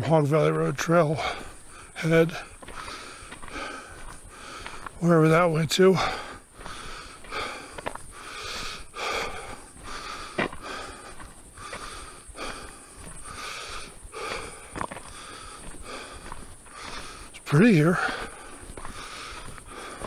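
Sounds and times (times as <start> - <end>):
person breathing hard: 1.1 - 5.1, 5.9 - 20.0.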